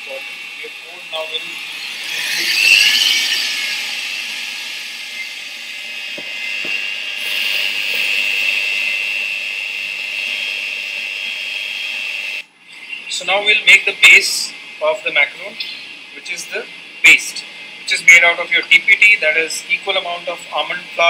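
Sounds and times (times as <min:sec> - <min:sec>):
stand mixer motor whine: 0:00.0 - 0:14.8.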